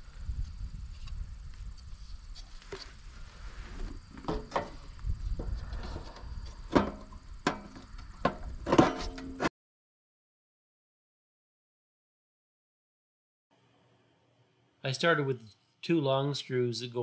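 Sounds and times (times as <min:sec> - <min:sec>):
metal frame knocking and clattering: 0:06.7 - 0:09.4.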